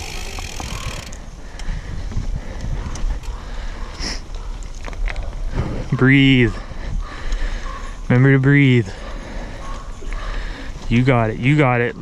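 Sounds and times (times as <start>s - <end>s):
tyres rolling over gravel: 0.0s - 1.2s
bike clicks and rattles: 0.0s - 3.4s, 4.5s - 5.4s
wind rumbling on microphone: 0.0s - 3.8s.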